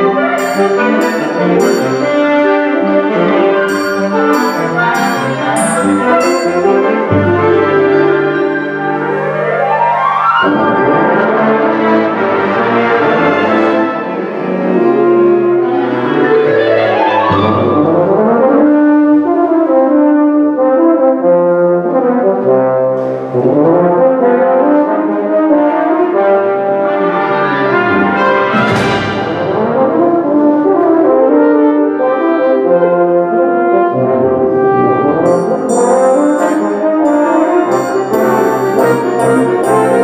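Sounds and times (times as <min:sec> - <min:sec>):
wind ensemble playing: 0:00.0 - 0:09.4, 0:35.3 - 0:40.0.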